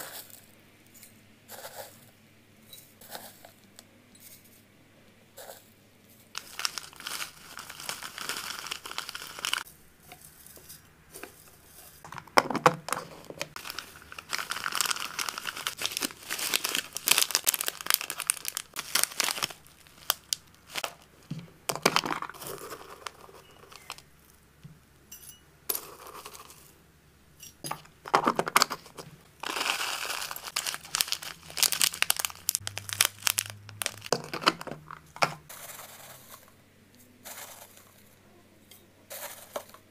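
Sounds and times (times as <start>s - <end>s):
dried herbs rustling: 5.4s - 12.2s, 12.9s - 24.4s, 28.6s - 36.5s, 37.2s - 38.2s
plastic bag crinkling: 6.3s - 9.7s, 11.2s - 24.1s, 28.1s - 35.9s.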